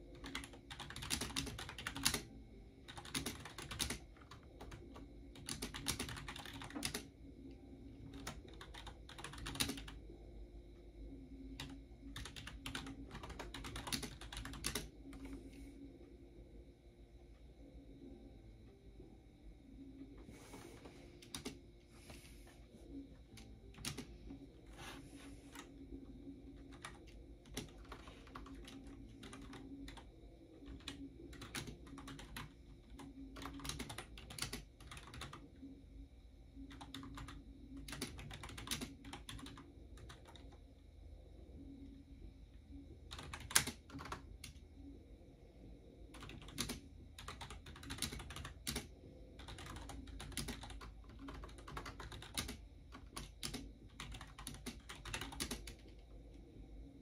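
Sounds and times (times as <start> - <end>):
typing on computer keyboard: 0.1 - 7.2, 8.0 - 10.0, 11.5 - 15.3, 21.2 - 21.6, 23.4 - 24.2, 26.5 - 35.5, 36.6 - 40.6, 43.1 - 44.6, 46.1 - 56.1.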